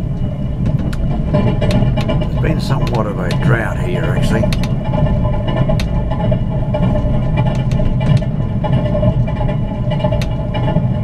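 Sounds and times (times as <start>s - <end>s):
faint steady hum: 0.0s - 11.0s
train wheels rumbling on rails: 0.0s - 11.0s
sharp clicks and rattles: 0.1s - 11.0s.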